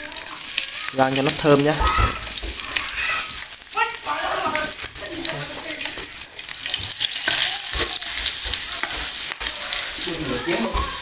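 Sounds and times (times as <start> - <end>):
garlic sizzling in hot oil: 0.0 - 11.0
wooden spatula scraping a pan: 4.5 - 11.0.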